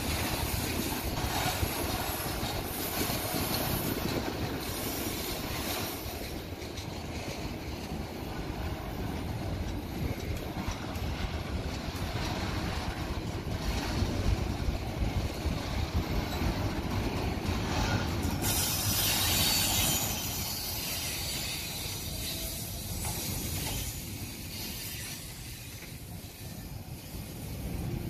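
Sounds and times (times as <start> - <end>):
freight train rumbling past: 0.0 - 28.0
high-pitched wheel noise: 17.7 - 26.7.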